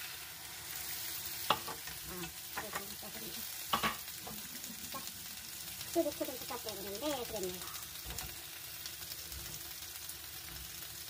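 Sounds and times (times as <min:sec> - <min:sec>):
vegetables sizzling in a pan: 0:00.0 - 0:11.0
wooden spoons knocking against pan: 0:03.7 - 0:04.4.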